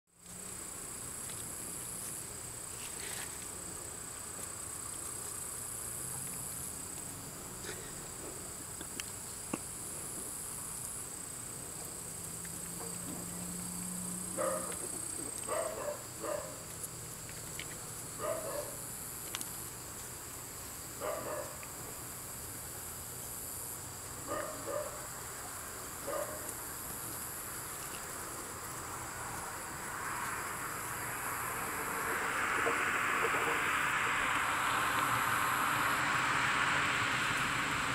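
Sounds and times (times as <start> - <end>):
insects chirring: 0.2 - 37.9
puppies yipping: 14.4 - 16.7.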